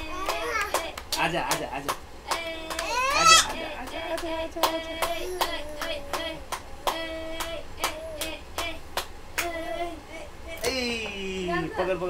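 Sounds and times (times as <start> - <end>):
child singing high notes: 0.0 - 0.8
sharp hand claps: 0.2 - 3.0, 3.8 - 9.6.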